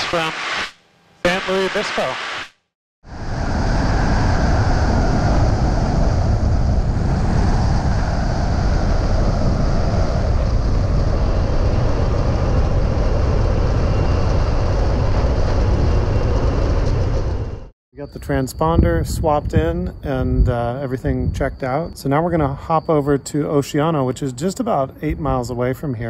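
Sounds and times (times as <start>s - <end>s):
loud wind rush: 0.0s - 22.6s
small plane engine and propeller: 3.1s - 17.7s.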